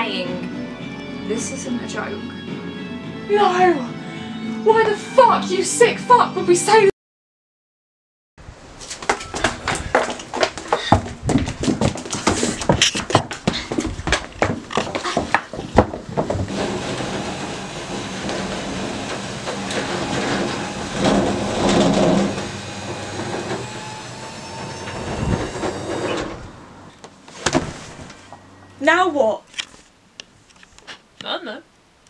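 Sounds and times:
footsteps: 0:08.8 - 0:23.8
metal roller door rattling: 0:09.3 - 0:28.2.

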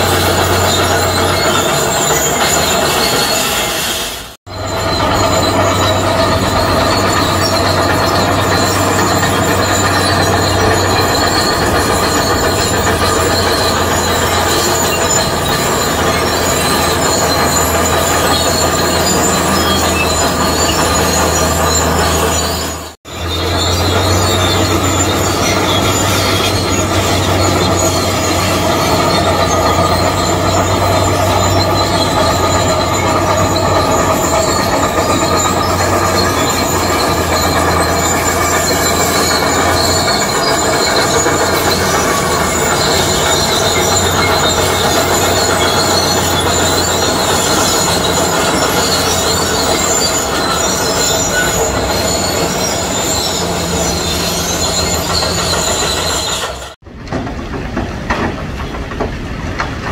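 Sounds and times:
bulldozer engine drone: 0:00.0 - 0:59.9
steel tracks squealing: 0:00.0 - 0:59.9.

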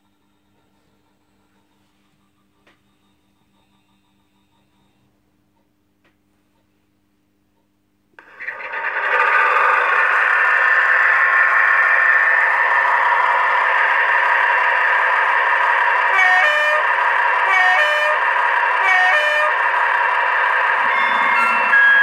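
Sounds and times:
diesel locomotive engine running: 0:00.0 - 0:05.7, 0:08.2 - 0:22.0
two-tone train horn: 0:16.1 - 0:19.6.

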